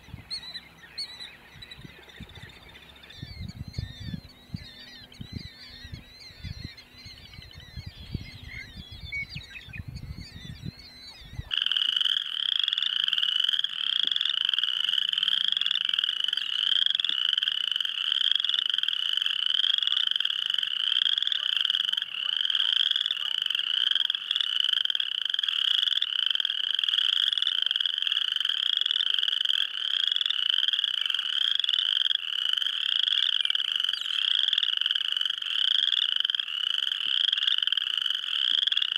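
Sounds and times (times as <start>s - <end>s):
faint bird calls: 0.0s - 11.7s
frog chorus trilling: 0.3s - 38.9s.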